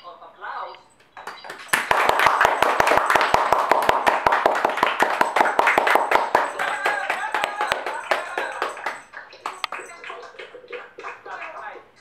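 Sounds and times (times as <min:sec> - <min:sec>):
person clapping rapidly: 0:01.2 - 0:11.7.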